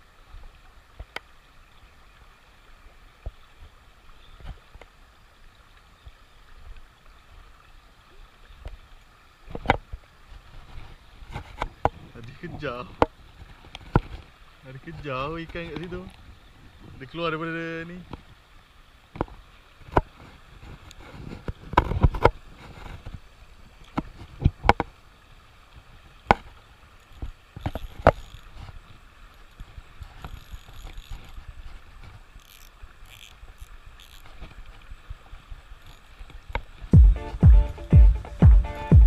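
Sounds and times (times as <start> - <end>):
fishing reel clicks and knocks: 30.2 - 31.3, 32.4 - 34.2
music with heavy beat: 37.0 - 39.0.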